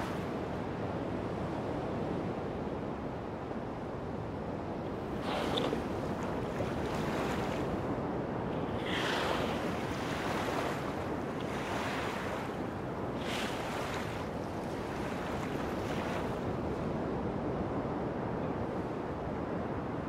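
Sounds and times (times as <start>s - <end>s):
sea water rushing: 0.0s - 0.5s, 4.9s - 16.5s.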